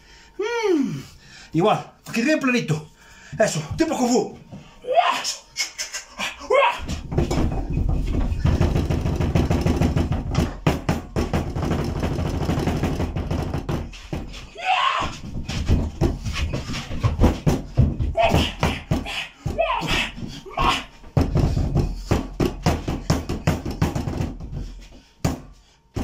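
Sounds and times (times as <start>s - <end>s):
hands chopping meat on wooden board: 8.4s - 14.3s, 17.0s - 24.6s, 25.2s - 26.0s
short vocal cry: 18.2s - 20.9s.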